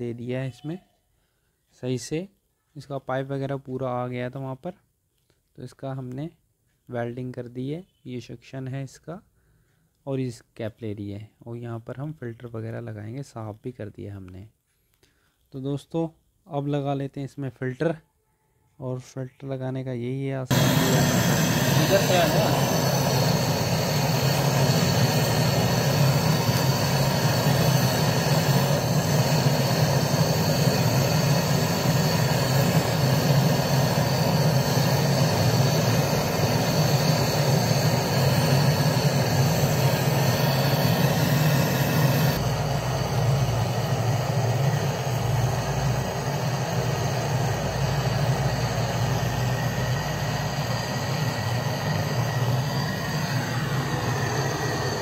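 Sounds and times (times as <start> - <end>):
gas torch hissing: 20.5 - 55.0.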